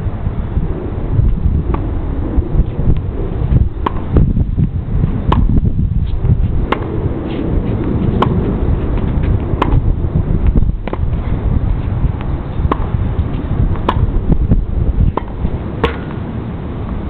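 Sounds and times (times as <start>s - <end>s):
wind rumble on microphone: 0.0s - 17.0s
tennis ball struck by rackets: 3.8s - 4.2s, 5.3s - 5.6s, 6.7s - 9.8s, 10.5s - 11.2s, 12.2s - 14.2s, 15.0s - 16.2s.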